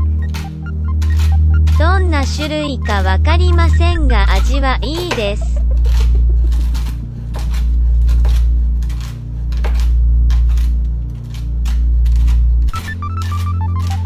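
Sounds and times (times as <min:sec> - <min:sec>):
loud low hum: 0:00.0 - 0:13.9
knife chopping nuts on a board: 0:04.9 - 0:14.0.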